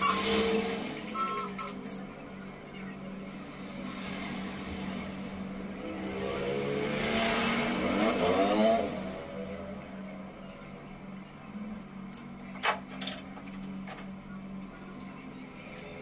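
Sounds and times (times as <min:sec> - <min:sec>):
motorcycle passing by: 0:03.6 - 0:09.9.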